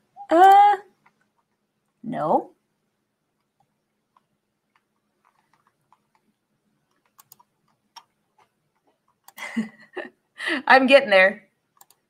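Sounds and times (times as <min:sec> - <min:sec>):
computer keyboard clicks: 0:06.9 - 0:08.1, 0:11.8 - 0:12.0.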